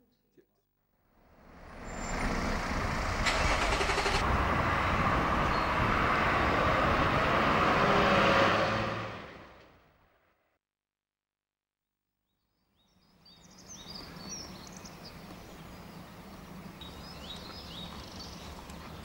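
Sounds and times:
bus and lorry passing: 0:01.2 - 0:10.3, 0:13.8 - 0:19.0.

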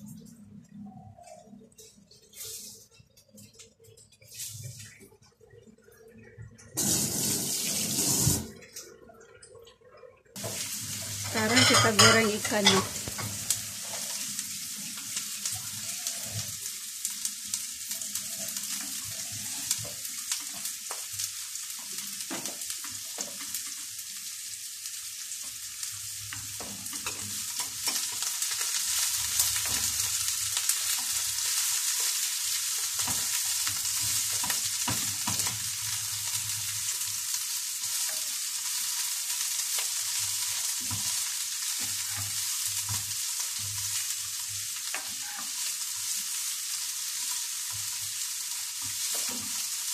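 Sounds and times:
fish frying in hot oil: 0:02.0 - 0:08.8, 0:09.4 - 0:49.9.

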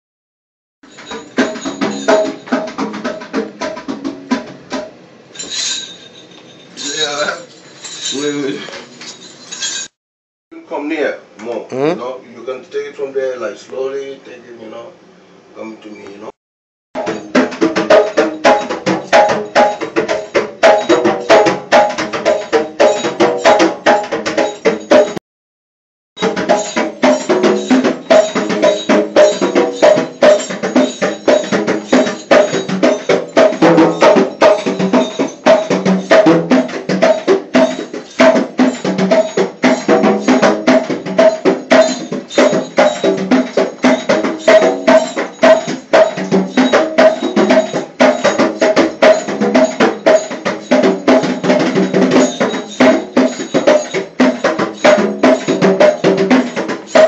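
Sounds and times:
drumming on a metal sink: 0:00.8 - 0:05.0, 0:17.0 - 0:25.2, 0:26.2 - 0:57.0.

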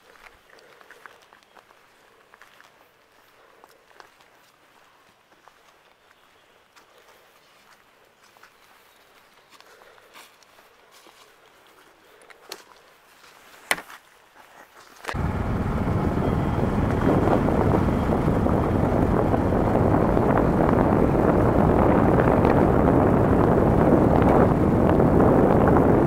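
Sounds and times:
rushing wind and road noise: 0:15.1 - 0:26.0.

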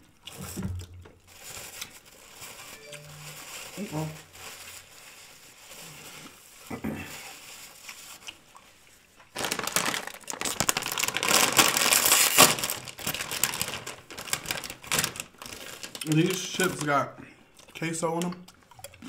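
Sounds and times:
plastic chip bag crinkling: 0:09.2 - 0:17.1.

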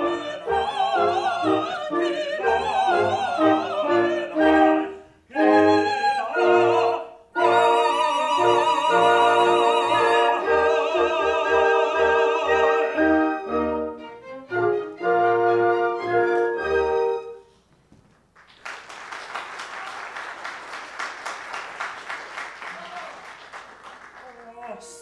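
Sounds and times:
operatic voices singing: 0:00.0 - 0:13.8
orchestra playing chords: 0:00.0 - 0:17.4
audience applause: 0:18.2 - 0:24.9.

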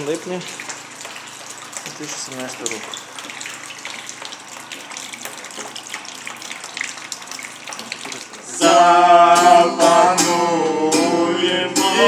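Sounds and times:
water splashing into plastic basin: 0:00.0 - 0:08.6
water dripping: 0:00.0 - 0:08.8
acoustic guitar: 0:07.9 - 0:12.0
men singing: 0:08.5 - 0:12.0.

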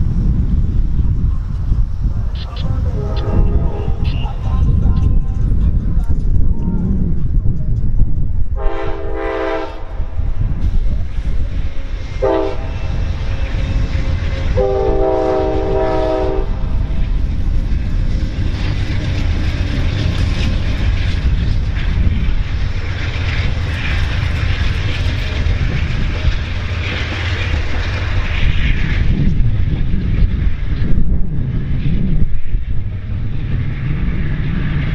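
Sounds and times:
train cars rumbling past: 0:00.0 - 0:34.9
locomotive horn blasts: 0:02.9 - 0:04.5, 0:08.6 - 0:10.0, 0:12.2 - 0:13.1, 0:14.4 - 0:16.7.

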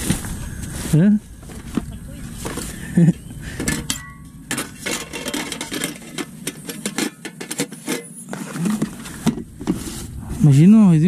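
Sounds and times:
cookware clinking: 0:03.6 - 0:07.6.

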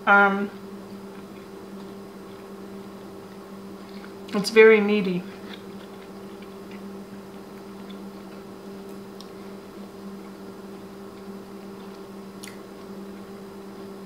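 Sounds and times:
low electrical hum: 0:00.0 - 0:14.0
person chewing: 0:00.9 - 0:04.4, 0:05.3 - 0:09.4, 0:11.1 - 0:13.3.

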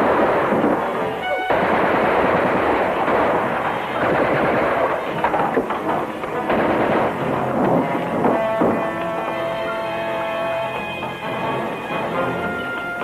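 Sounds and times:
machine-gun bursts: 0:00.0 - 0:08.5
single gunshots: 0:00.0 - 0:08.8.

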